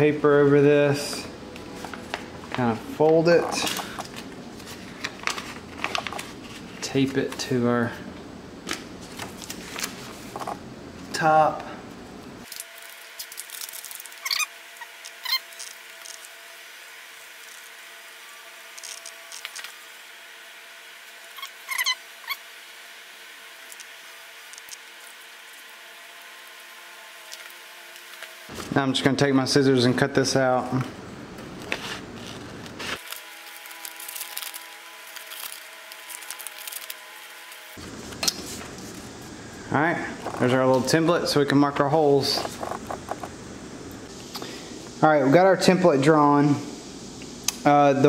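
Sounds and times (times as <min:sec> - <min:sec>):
faint hum: 0:00.0 - 0:48.0
paper rustling: 0:01.6 - 0:07.4, 0:09.0 - 0:10.5, 0:31.5 - 0:39.1
tape squeaky rasps: 0:13.9 - 0:16.3, 0:21.3 - 0:22.5.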